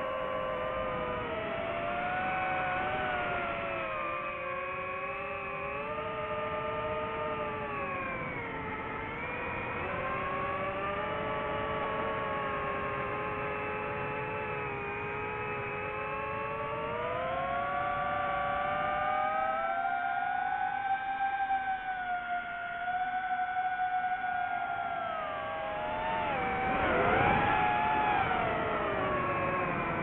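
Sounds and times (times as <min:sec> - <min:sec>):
drone propellers whining: 0:15.4 - 0:30.0.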